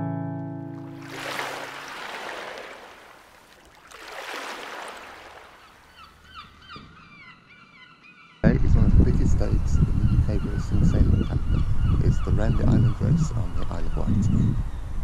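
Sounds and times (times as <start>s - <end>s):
chirping bird calls: 5.0s - 15.0s.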